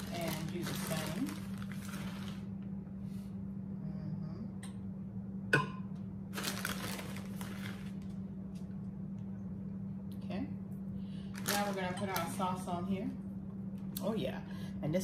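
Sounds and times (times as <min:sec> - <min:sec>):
plastic bag rustling: 0:00.0 - 0:02.5, 0:06.3 - 0:08.2, 0:11.3 - 0:12.7
steady low hum: 0:00.0 - 0:15.0.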